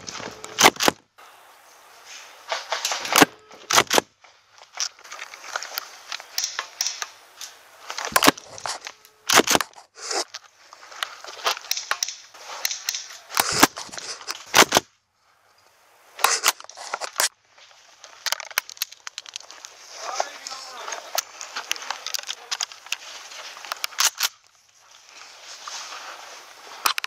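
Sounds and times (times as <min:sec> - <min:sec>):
gear rustling and scraping: 0:02.1 - 0:14.8, 0:15.4 - 0:27.0
airsoft guns firing: 0:06.3 - 0:07.2, 0:11.6 - 0:13.8.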